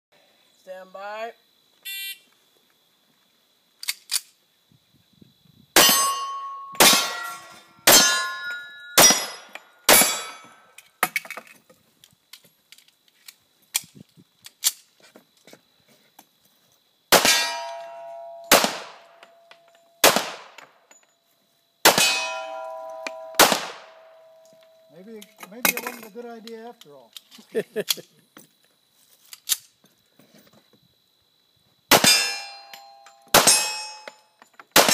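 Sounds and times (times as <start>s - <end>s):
steel target ringing: 5.8s - 10.5s, 17.2s - 18.7s, 21.9s - 24.9s, 32.0s - 34.1s.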